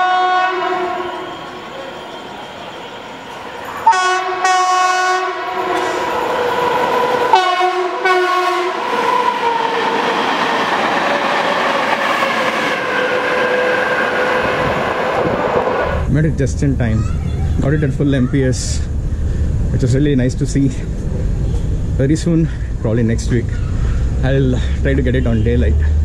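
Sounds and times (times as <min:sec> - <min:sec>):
train horn blasts: 0:00.0 - 0:02.4, 0:03.8 - 0:06.1, 0:07.3 - 0:08.8
train rushing past with rumble: 0:00.0 - 0:26.0.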